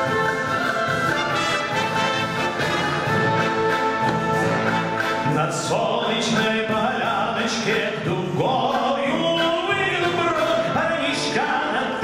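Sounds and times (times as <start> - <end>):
military brass band: 0.0 - 8.0
man singing: 5.2 - 12.0.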